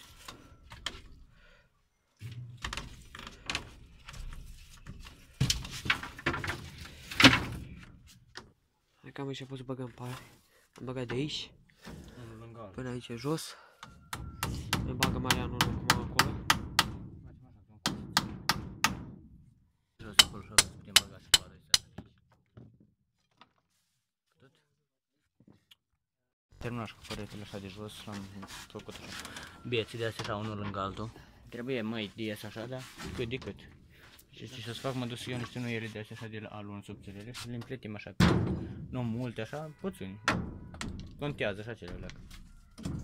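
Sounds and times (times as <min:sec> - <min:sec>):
wooden sticks knocking and clattering: 0:02.6 - 0:08.5
hammer striking nail: 0:14.1 - 0:17.1, 0:17.8 - 0:19.2.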